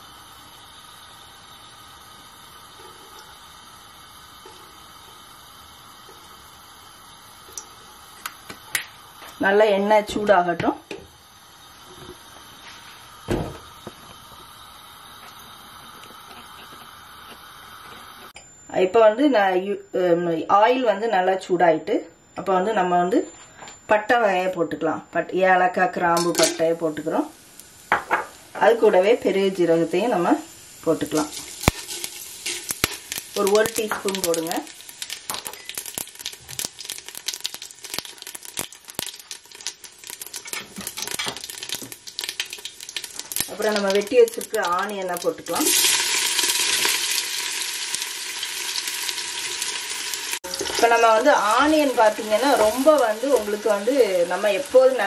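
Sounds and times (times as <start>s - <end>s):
gas burner hissing: 0.0s - 18.4s, 25.7s - 55.0s
spices sizzling in hot oil: 0.0s - 18.4s, 25.4s - 55.0s
sharp pops of frying seeds: 7.4s - 9.4s, 26.1s - 26.7s, 27.5s - 28.7s, 31.0s - 54.8s
thump: 13.3s - 13.6s.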